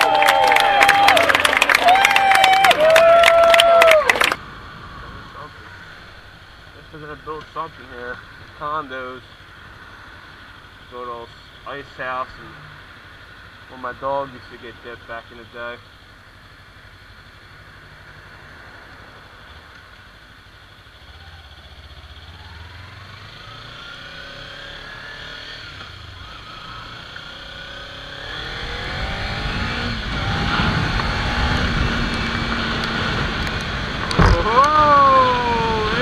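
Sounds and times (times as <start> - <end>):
motorcycle engine revving: 21.7 - 36.0.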